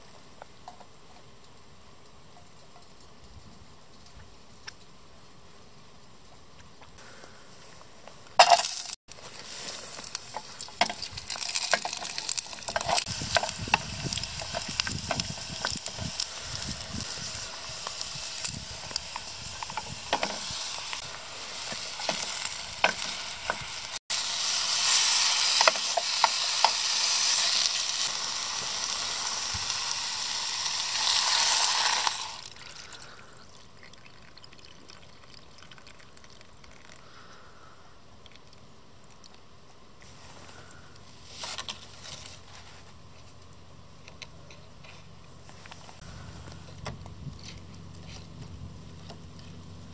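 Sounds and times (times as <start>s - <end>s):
food sizzling in oil: 8.4s - 32.8s.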